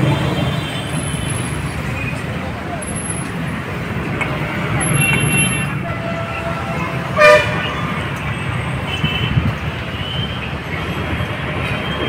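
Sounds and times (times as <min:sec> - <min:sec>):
street traffic: 0:00.0 - 0:12.0
distant horn toots: 0:04.9 - 0:08.0
vehicle horn toot: 0:05.0 - 0:07.8.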